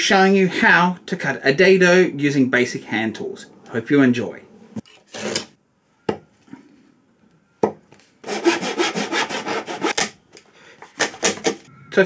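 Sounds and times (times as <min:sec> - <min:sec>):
hand saw cutting wood: 0:08.2 - 0:10.2, 0:10.9 - 0:11.6.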